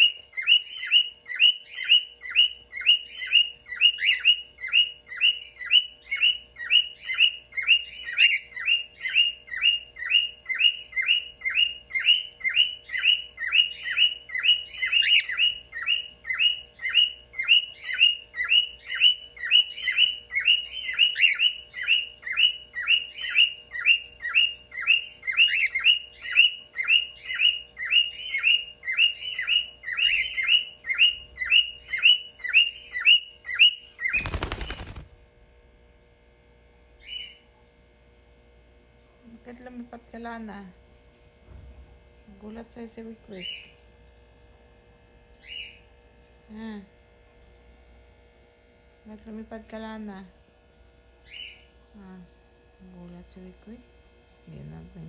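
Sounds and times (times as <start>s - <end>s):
cockatiel chirping: 0.0s - 35.0s.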